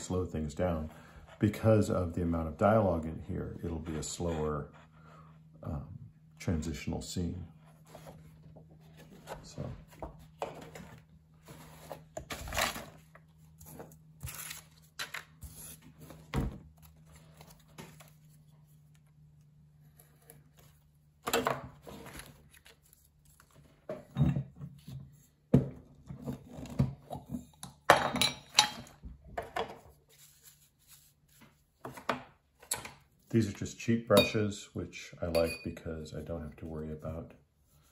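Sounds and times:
paper and art materials handled: 0:07.6 - 0:27.6, 0:29.4 - 0:33.4.

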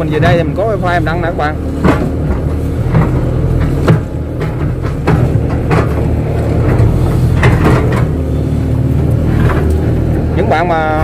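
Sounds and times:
excavator diesel engine running: 0:00.0 - 0:11.0
sharp knocks: 0:01.8 - 0:08.3.

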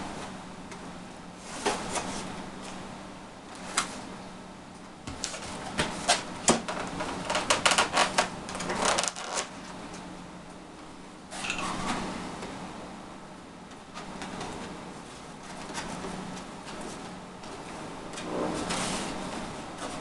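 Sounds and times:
steady low hum: 0:00.0 - 0:20.0
clicks and rustles of handling: 0:05.1 - 0:10.1.

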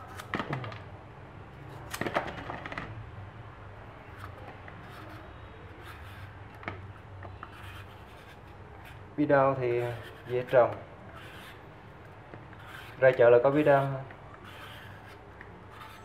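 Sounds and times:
blade scraping melon skin: 0:04.1 - 0:06.4, 0:09.6 - 0:11.7, 0:12.5 - 0:16.0.

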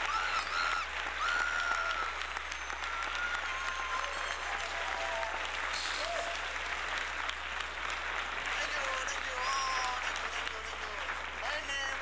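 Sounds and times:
cheers and whistles: 0:00.0 - 0:06.7
audience applauding: 0:00.0 - 0:12.0.

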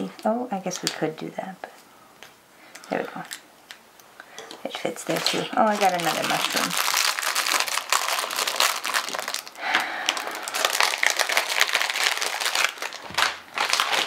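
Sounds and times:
plastic bags crinkling: 0:02.7 - 0:03.8, 0:04.4 - 0:14.0.

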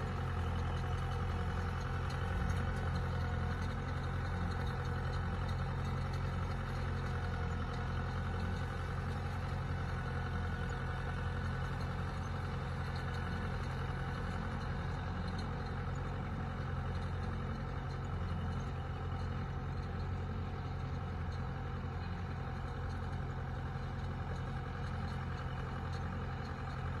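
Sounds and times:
tractor engine droning: 0:00.0 - 0:27.0.

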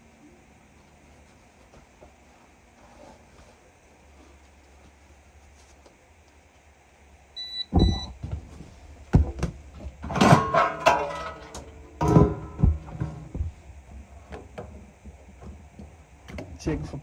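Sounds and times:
sharp knocks and metallic clattering: 0:07.7 - 0:16.6.

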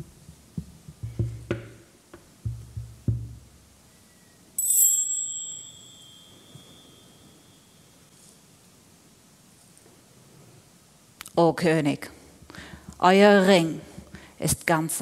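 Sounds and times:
low hand-drum strokes: 0:00.0 - 0:03.7
bright metallic ding: 0:04.6 - 0:07.8.

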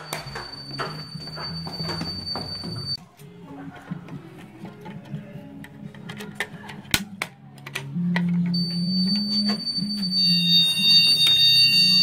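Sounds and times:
high-pitched alarm tones: 0:00.0 - 0:03.0, 0:08.5 - 0:12.0
low alarm sounder tone: 0:00.0 - 0:03.0, 0:08.6 - 0:12.0.

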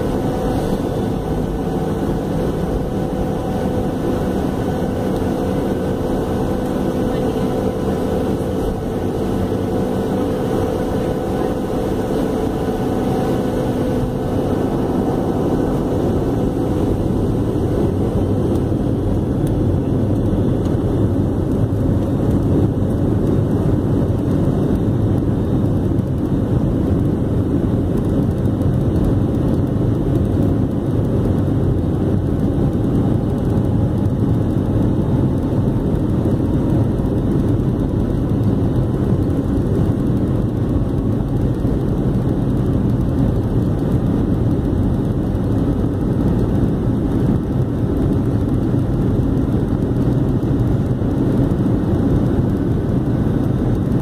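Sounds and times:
jet engines roaring in cabin: 0:00.0 - 0:54.0
steady hum tones: 0:00.0 - 0:54.0.

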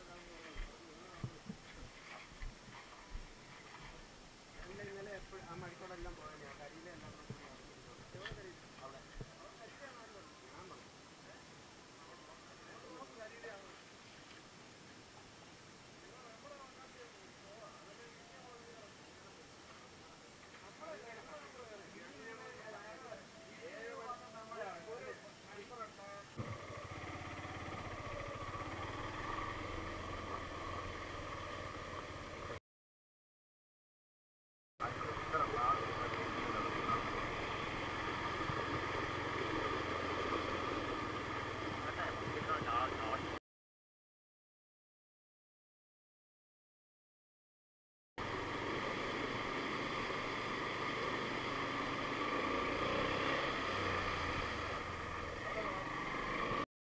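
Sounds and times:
constant hiss of water: 0:00.0 - 0:32.6, 0:34.8 - 0:43.4, 0:48.2 - 0:56.6
motorcycle engine running: 0:26.4 - 0:32.6, 0:34.8 - 0:43.4.

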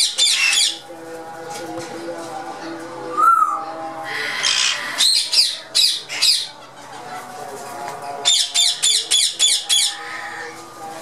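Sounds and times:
parakeets screeching: 0:00.0 - 0:00.8, 0:03.3 - 0:06.6, 0:08.2 - 0:10.6.

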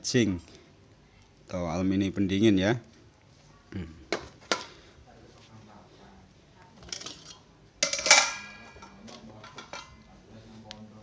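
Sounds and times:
ringing metallic clang: 0:07.8 - 0:09.0.

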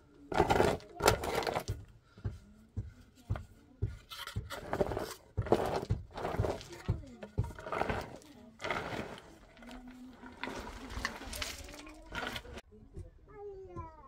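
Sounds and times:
wooden board scraping stony earth: 0:00.3 - 0:01.9, 0:03.9 - 0:12.6.

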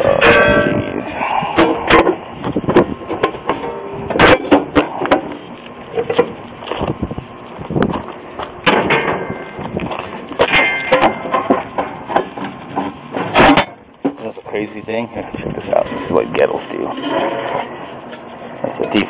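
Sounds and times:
sheet metal clanks and knocks: 0:00.0 - 0:01.0, 0:01.6 - 0:05.3, 0:08.6 - 0:09.6, 0:10.4 - 0:14.3.

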